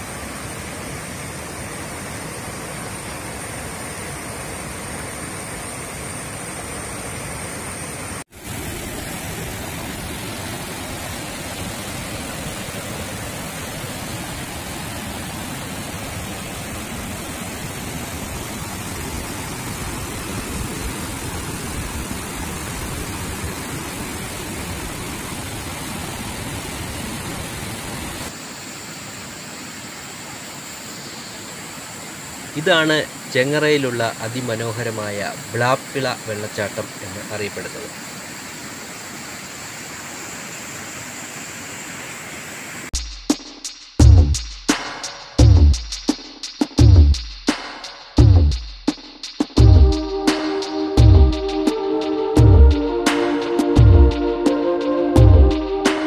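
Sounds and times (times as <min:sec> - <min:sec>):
waterfall rushing over rocks: 0:00.0 - 0:42.9.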